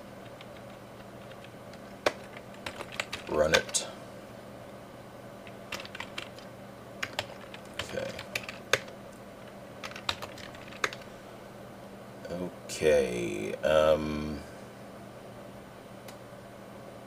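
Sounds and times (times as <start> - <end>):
faint steady hum: 0.0 - 17.0
keyboard keystrokes: 0.2 - 3.6, 5.5 - 6.4, 7.0 - 8.9, 9.8 - 11.0.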